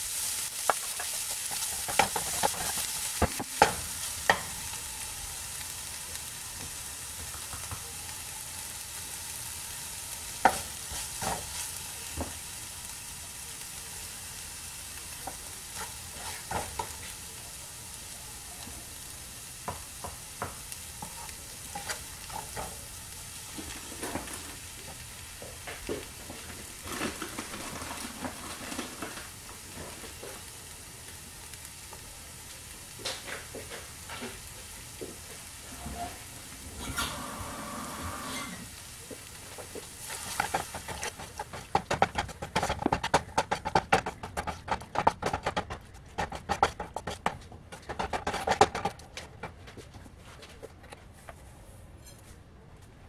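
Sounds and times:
onions sizzling in oil: 0.0s - 44.5s
wooden spatula scraping pan: 36.8s - 38.7s, 40.0s - 49.0s.

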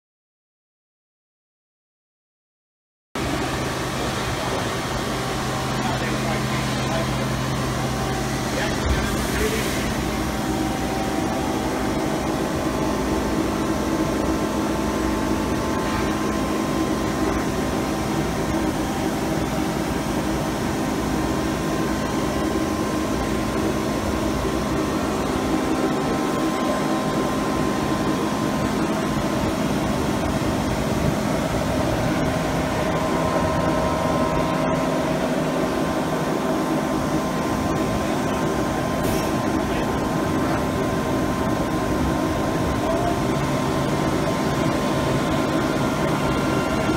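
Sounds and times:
machine humming with constant tones: 3.2s - 46.9s.

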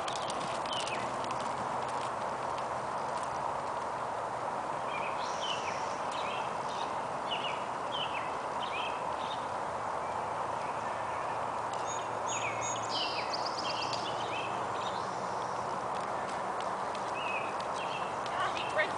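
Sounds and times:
horse hoofbeats on dirt: 0.0s - 4.4s, 10.1s - 18.9s
outdoor background hiss: 0.0s - 18.9s
bird chirping: 4.8s - 18.9s.

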